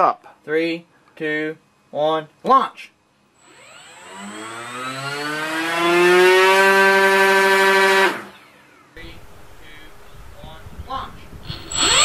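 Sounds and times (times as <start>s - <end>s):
electric motor propeller whine: 3.4s - 9.7s, 11.3s - 12.0s.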